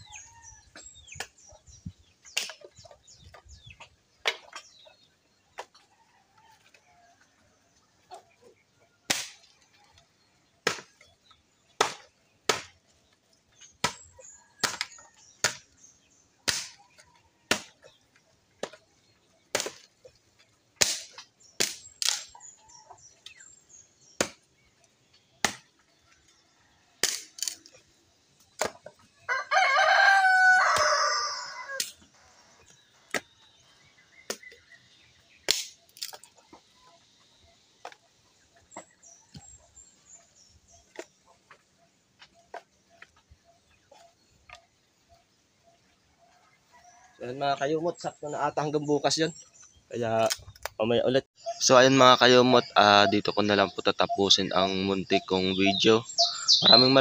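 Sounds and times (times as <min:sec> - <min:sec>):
machete chopping firewood: 0:09.1 - 0:09.5, 0:10.6 - 0:11.0, 0:11.7 - 0:12.8, 0:13.8 - 0:15.7, 0:16.4 - 0:16.9, 0:17.5 - 0:17.9, 0:18.6 - 0:18.8, 0:19.5 - 0:19.9, 0:20.8 - 0:22.3, 0:24.2 - 0:24.5, 0:25.4 - 0:25.8, 0:27.0 - 0:27.4, 0:28.6 - 0:28.9, 0:35.4 - 0:36.2
rooster crowing: 0:29.3 - 0:31.8.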